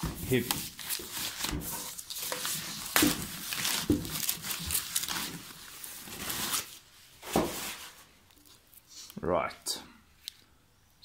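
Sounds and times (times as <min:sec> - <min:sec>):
plastic and foam packaging rustling: 0:00.0 - 0:09.1.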